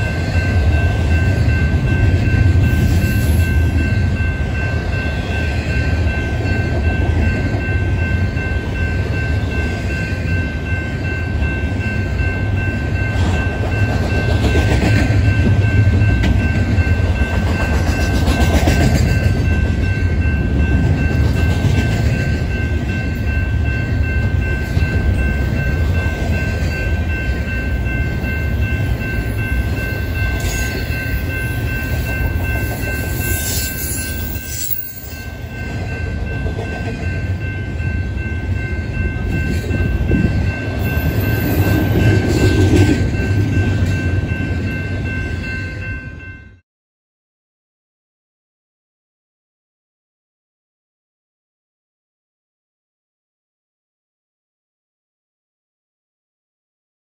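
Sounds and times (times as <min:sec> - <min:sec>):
train wheels rumbling on rail: 0:00.0 - 0:46.2.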